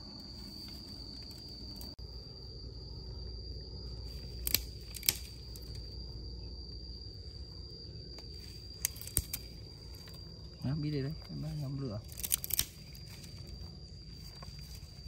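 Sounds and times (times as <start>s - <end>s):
high-pitched insect drone: 0.0s - 15.0s
low outdoor rumble: 0.0s - 15.0s
dry twigs snapping: 4.1s - 5.8s, 8.1s - 10.2s, 12.0s - 14.8s.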